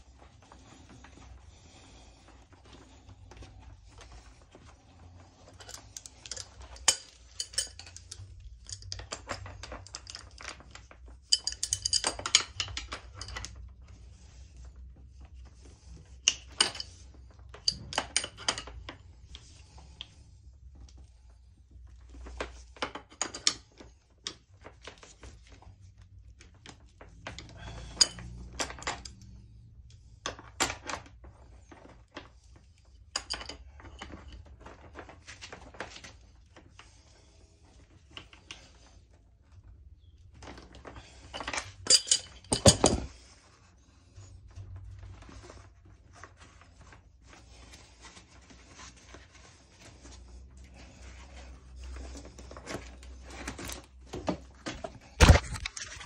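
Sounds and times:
spanners clinking on metal nuts: 5.6s - 10.2s, 11.3s - 13.5s, 27.8s - 29.2s, 41.4s - 43.1s.

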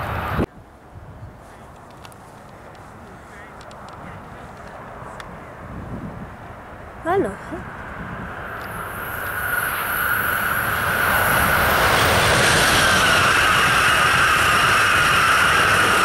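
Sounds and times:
high-pitched train whine: 0.0s - 0.5s, 4.1s - 16.0s
train wheel and air rush: 0.0s - 0.5s, 1.8s - 16.0s.

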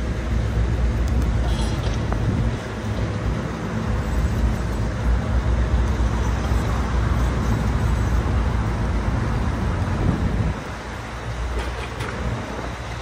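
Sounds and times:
excavator diesel engine: 0.0s - 13.0s.

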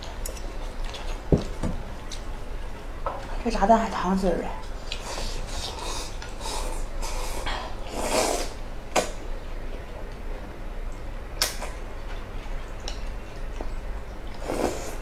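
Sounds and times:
chewing: 0.2s - 1.3s.

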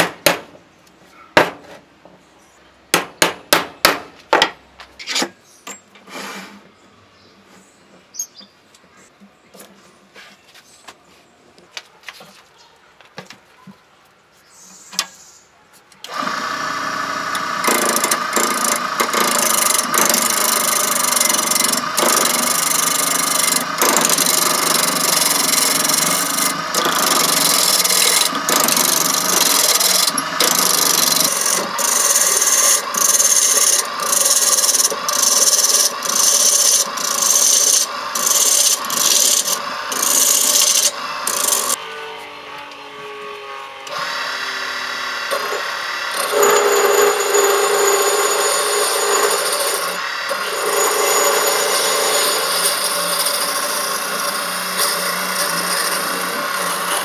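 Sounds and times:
gouge scraping spinning wood: 16.1s - 41.8s, 44.0s - 57.0s.

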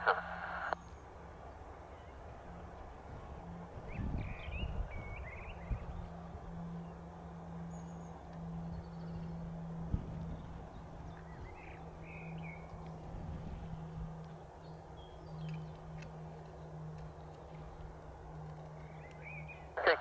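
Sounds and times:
distant jet engines: 0.0s - 20.0s.

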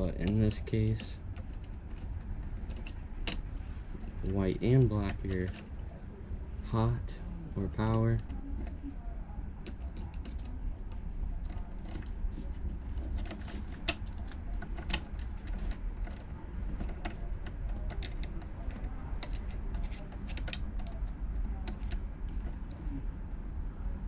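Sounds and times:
metallic clicks and rattles: 0.0s - 5.8s, 9.6s - 22.8s
steady low hum: 0.0s - 24.0s.

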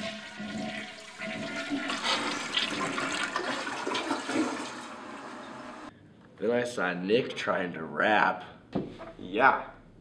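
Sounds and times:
toilet flushing: 0.0s - 5.9s.

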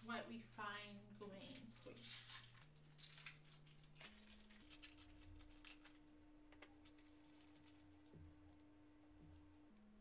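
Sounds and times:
faint low hum: 0.0s - 10.0s
wrapper crinkling and tearing: 0.9s - 8.6s.

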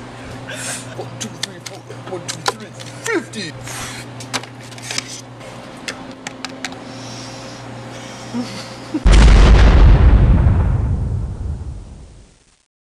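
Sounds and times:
loud explosion boom: 9.1s - 12.3s.

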